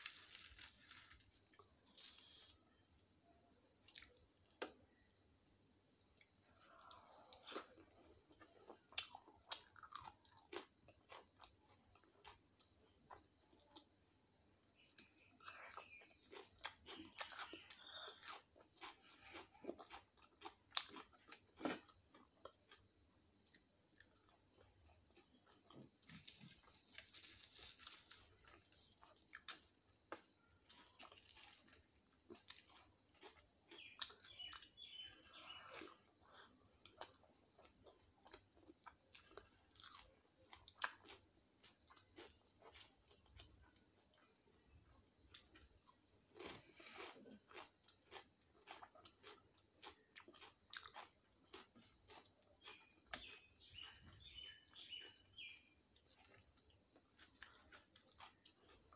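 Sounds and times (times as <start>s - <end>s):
fried bread crackling as torn: 0.0s - 2.5s, 26.1s - 29.7s
person chewing food: 0.0s - 2.8s, 6.0s - 14.0s, 14.8s - 58.9s.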